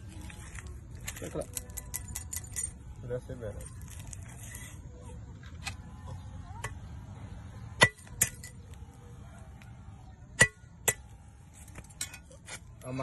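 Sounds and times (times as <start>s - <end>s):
blade striking a steel chain: 1.0s - 2.9s, 7.8s - 8.6s, 10.4s - 12.4s.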